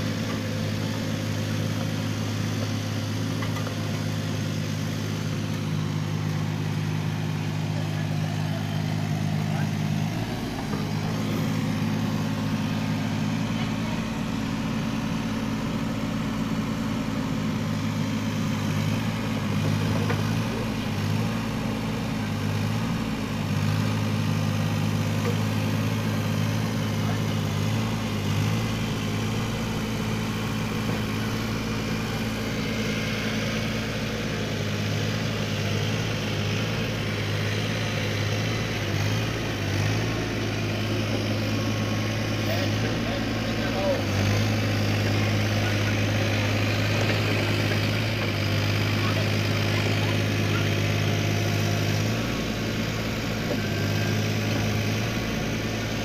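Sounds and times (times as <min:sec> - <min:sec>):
diesel engine running: 0:00.0 - 0:56.0.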